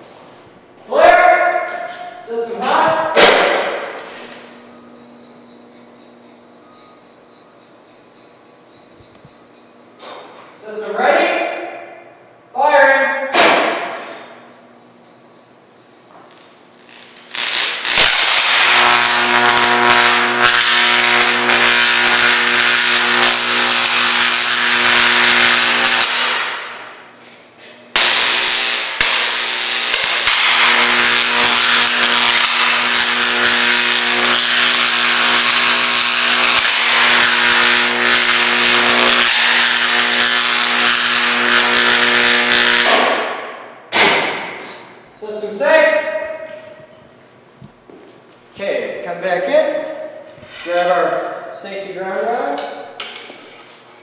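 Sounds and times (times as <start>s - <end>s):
electrical buzz: 0.0s - 12.6s, 13.2s - 51.6s
electric arc crackling hiss: 16.3s - 43.6s.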